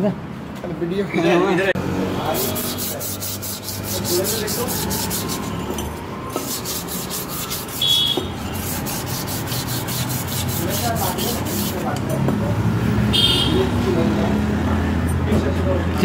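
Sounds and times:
rhythmic rubbing strokes: 0:02.2 - 0:12.1
high squeak: 0:02.4 - 0:11.8.

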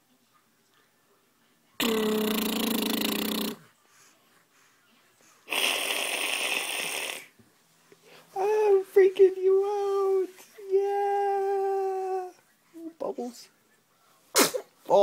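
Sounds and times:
man making buzzing blow: 0:01.8 - 0:03.6
man making hissing blow: 0:05.5 - 0:07.3, 0:14.4 - 0:14.7.

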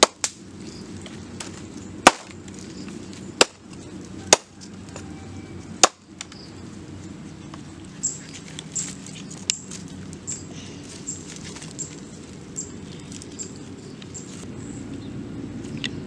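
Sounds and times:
sharp crack: 0:00.0 - 0:00.5, 0:01.4 - 0:02.6, 0:03.4 - 0:04.5, 0:05.8 - 0:06.4
low outdoor rumble: 0:00.0 - 0:16.0.

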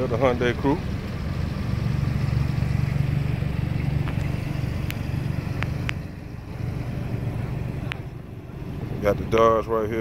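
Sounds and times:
car engine idling: 0:00.0 - 0:10.0
faint sharp clicks: 0:04.0 - 0:05.0.

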